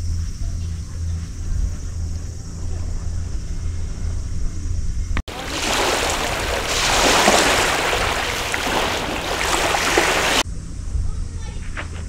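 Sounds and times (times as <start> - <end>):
waves washing on pebbles: 5.3 - 10.4.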